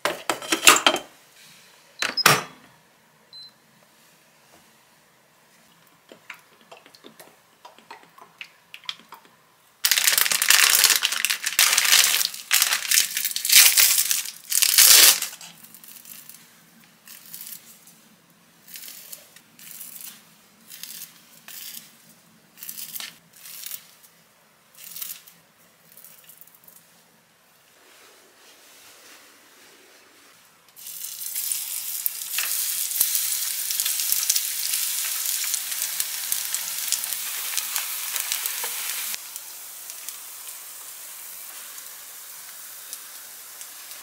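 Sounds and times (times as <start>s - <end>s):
plastic wrappers crinkling and tearing: 9.8s - 16.4s, 30.9s - 40.3s.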